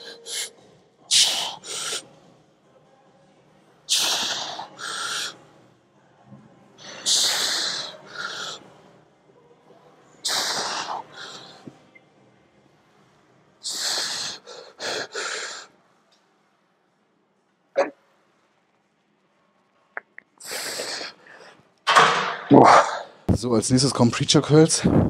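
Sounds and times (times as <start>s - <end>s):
loud hissing breaths: 1.1s - 2.1s, 3.9s - 5.4s, 6.8s - 8.7s, 10.2s - 11.7s, 13.6s - 15.7s.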